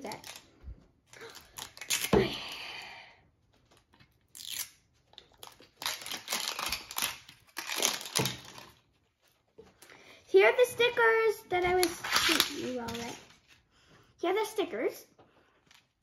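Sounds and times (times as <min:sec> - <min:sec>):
wrapping paper crinkly tearing: 0:00.0 - 0:00.5, 0:01.1 - 0:02.1, 0:03.7 - 0:09.3, 0:11.8 - 0:13.5.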